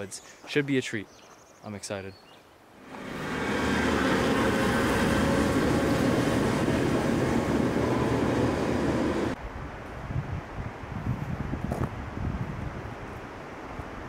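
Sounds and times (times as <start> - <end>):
outdoor noise: 0.0 - 14.0
passing train rumble: 2.8 - 9.4.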